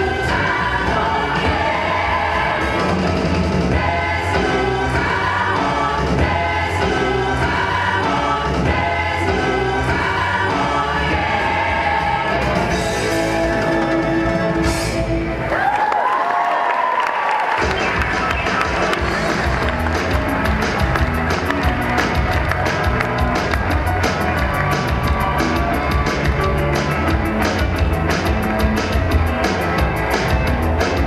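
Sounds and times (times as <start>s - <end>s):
choir singing: 0.0s - 14.1s.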